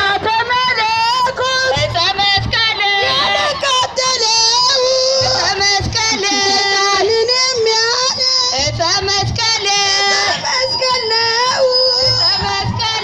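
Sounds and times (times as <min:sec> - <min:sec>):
low music beat: 0:00.1 - 0:13.0.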